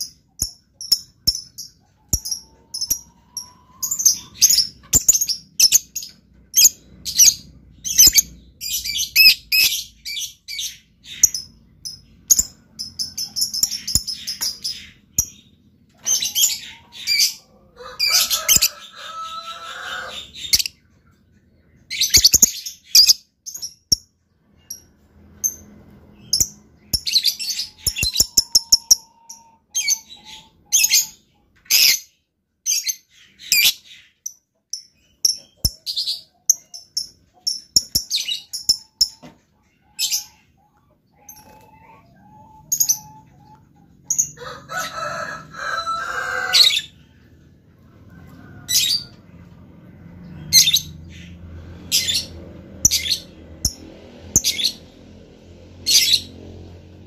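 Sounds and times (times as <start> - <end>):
harsh bird chattering: 0.0 - 19.0
bird chirping: 0.0 - 44.9, 45.9 - 57.0.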